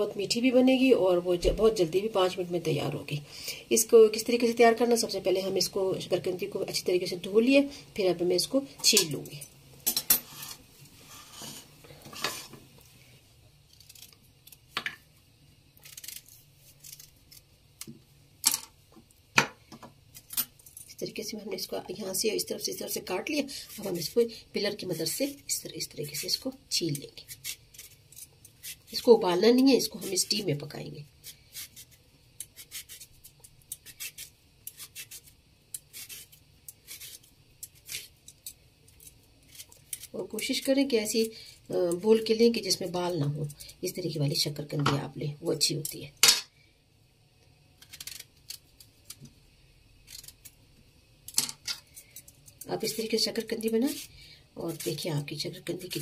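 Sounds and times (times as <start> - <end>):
peeler scraping sweet potato: 23.7 - 29.2, 29.8 - 41.4, 51.9 - 56.0.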